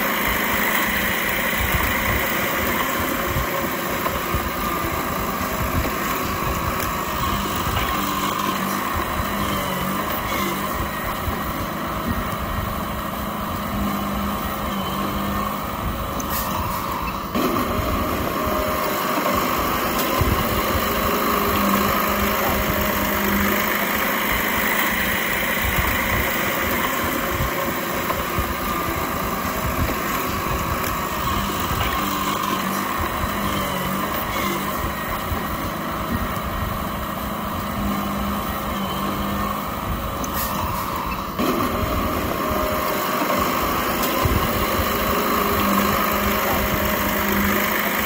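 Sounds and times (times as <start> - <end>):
bulldozer diesel engine running: 0.0 - 48.0.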